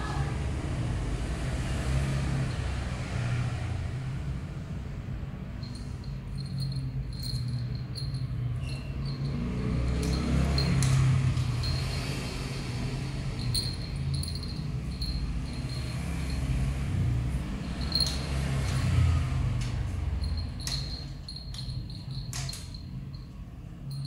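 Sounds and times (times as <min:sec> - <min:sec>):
small bell tinkling: 0:05.5 - 0:19.2, 0:20.0 - 0:24.0.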